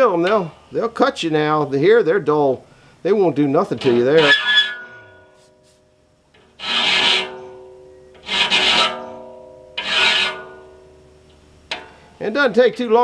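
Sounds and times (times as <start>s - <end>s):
hand file rasping on steel: 6.6s - 7.4s, 8.2s - 9.1s, 9.8s - 10.6s.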